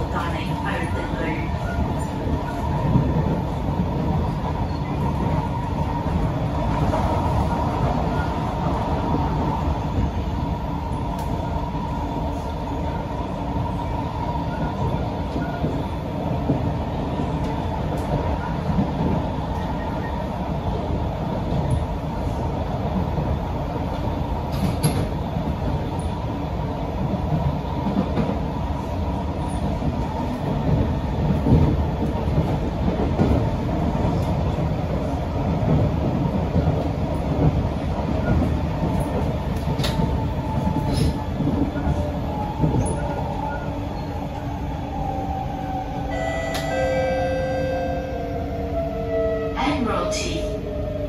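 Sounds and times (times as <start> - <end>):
train wheels rumbling on rail: 0.0 - 51.0.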